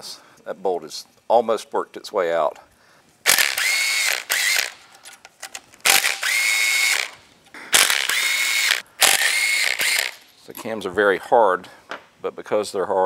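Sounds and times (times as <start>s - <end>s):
power driver motor whine: 3.3s - 4.8s, 5.9s - 10.2s.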